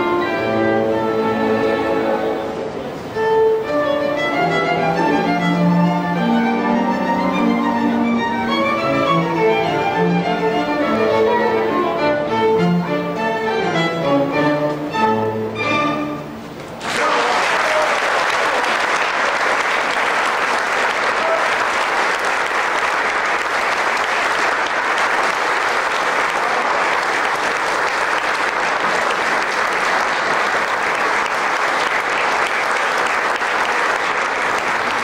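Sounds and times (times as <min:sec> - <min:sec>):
string quartet: 0:00.0 - 0:16.8
audience applauding: 0:16.7 - 0:35.0.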